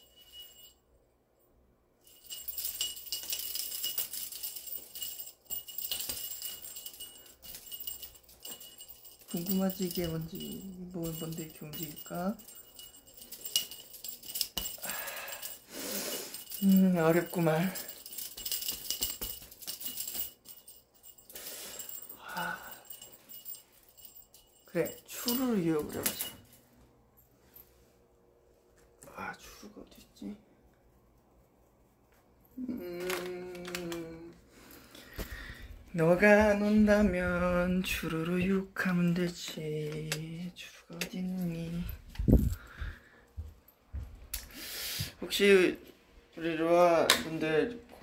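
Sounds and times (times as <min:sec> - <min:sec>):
jingle bell jingling: 0:00.0 - 0:00.9, 0:02.0 - 0:27.9, 0:32.5 - 0:47.8.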